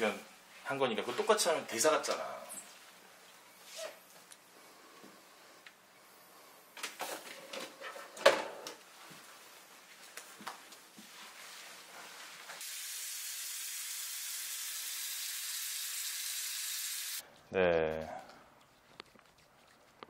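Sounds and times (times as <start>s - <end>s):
spray nozzle hissing: 12.6s - 17.2s.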